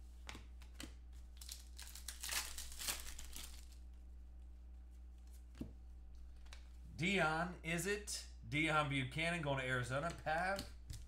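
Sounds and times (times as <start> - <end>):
foil wrapper crinkling: 1.4 - 3.8.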